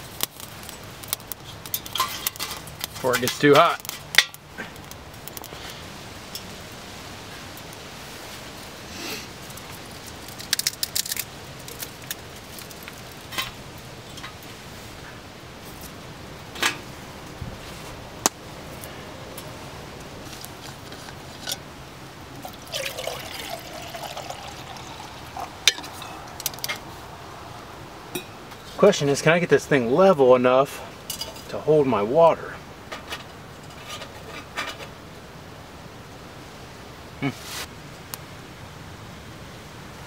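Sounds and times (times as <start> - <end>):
twig fire crackling: 0.0 - 32.1, 32.7 - 38.7
water pouring into metal cup: 22.4 - 26.6.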